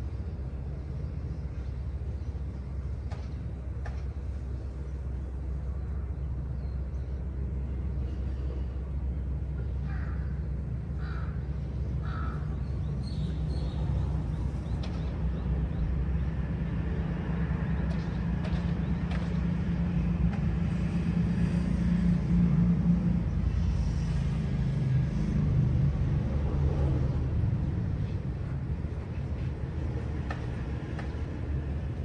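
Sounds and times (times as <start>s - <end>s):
distant engine rumble: 0.0s - 32.0s
crow cawing: 9.9s - 10.3s, 11.0s - 11.4s, 12.0s - 12.5s.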